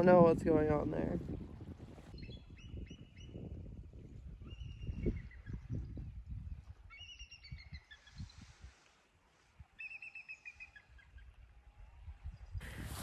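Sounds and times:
songbird singing: 0:02.1 - 0:08.6, 0:09.8 - 0:11.6.

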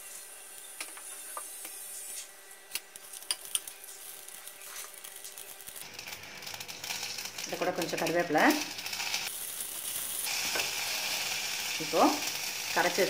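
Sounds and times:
seeds popping in a pan: 0:02.8 - 0:13.0
seeds sizzling in hot oil: 0:02.9 - 0:13.0.

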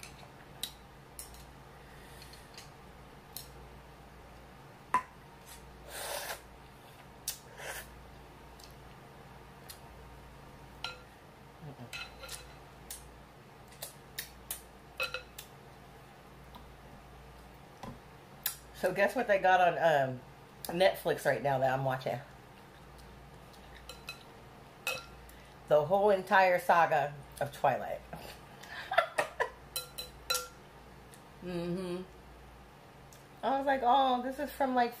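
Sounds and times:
utensils clinking on glass bowls: 0:29.7 - 0:30.6.

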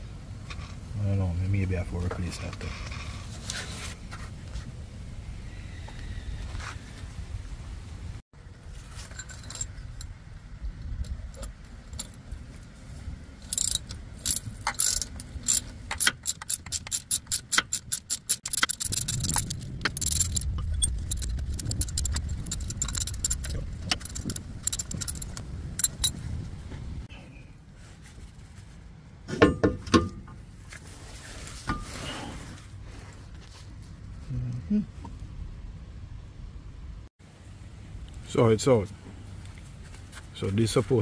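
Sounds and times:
metal jangling: 0:09.0 - 0:10.2, 0:13.4 - 0:26.4
ratchet wrench clicking: 0:13.4 - 0:26.2
low rumble: 0:18.4 - 0:27.1.

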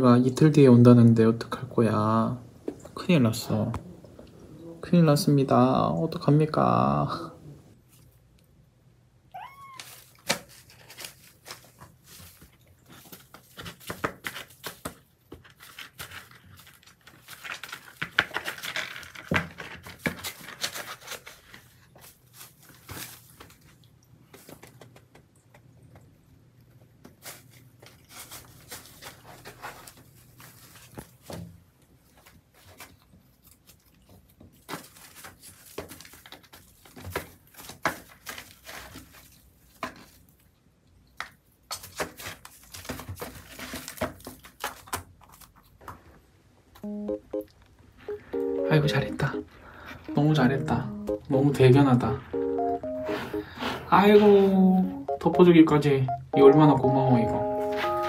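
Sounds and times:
kitten rustling shredded paper: 0:09.6 - 0:23.8, 0:27.1 - 0:31.3, 0:31.9 - 0:40.3, 0:41.8 - 0:45.5.

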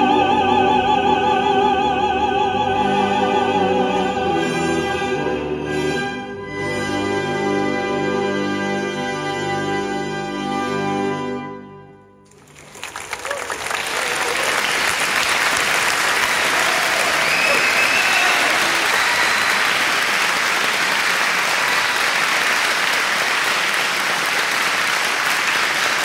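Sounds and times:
audience applauding: 0:12.3 - 0:26.0.

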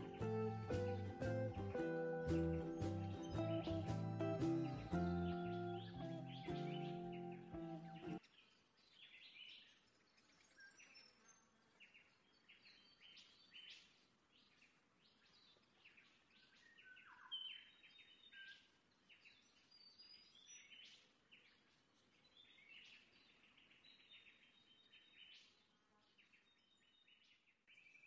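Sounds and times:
lower falling bird call: 0:00.0 - 0:08.2
faint chirping of small birds: 0:00.0 - 0:28.0.

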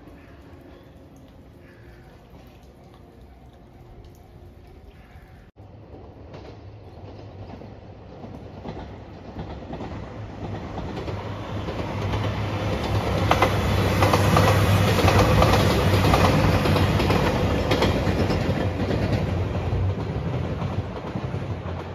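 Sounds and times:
train engine drone: 0:00.0 - 0:21.9
train wheel noise: 0:05.6 - 0:21.9
wheels clacking over rail joints: 0:05.8 - 0:21.9.

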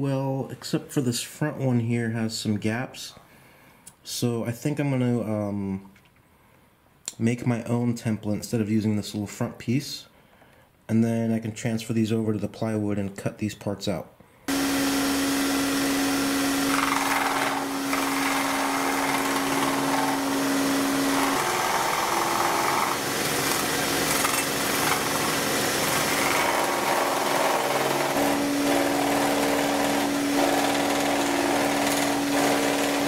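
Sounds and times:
saw blade rasping through wood: 0:14.5 - 0:33.0
scroll saw motor hum: 0:14.5 - 0:33.0.

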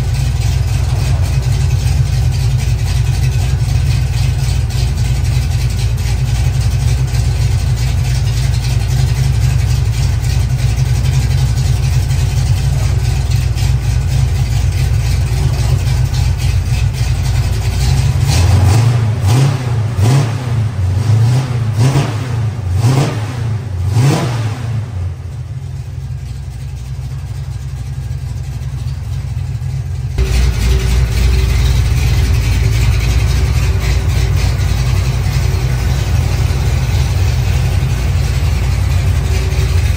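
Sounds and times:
car engine idling: 0:00.0 - 0:39.9
engine revving: 0:17.8 - 0:25.0, 0:30.2 - 0:39.9.

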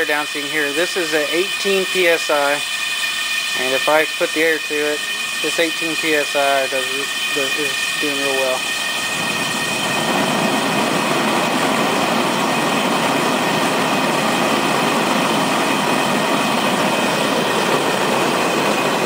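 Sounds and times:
gas burner roaring: 0:00.0 - 0:19.0
faint whistle: 0:00.6 - 0:10.0.

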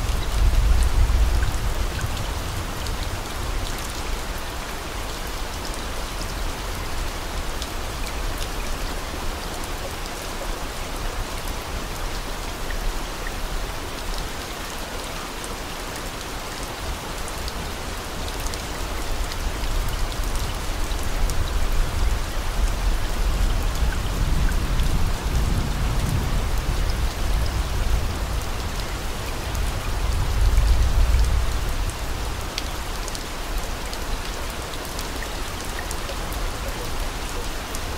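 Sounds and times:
steady rain patter: 0:00.0 - 0:37.9.

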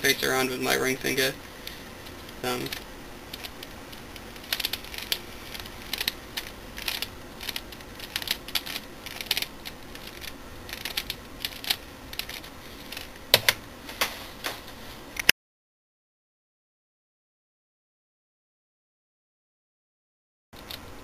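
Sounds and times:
plastic puzzle clicking: 0:02.2 - 0:13.6.

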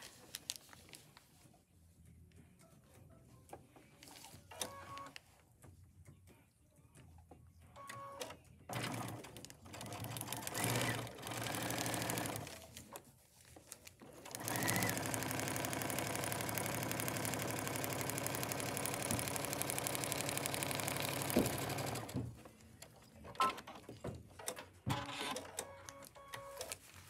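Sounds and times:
sewing machine stitching: 0:08.2 - 0:12.7, 0:14.0 - 0:22.2.

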